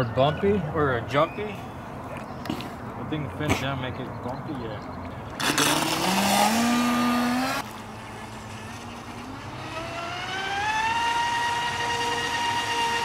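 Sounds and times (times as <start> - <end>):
electric motor whining: 8.4 - 13.0.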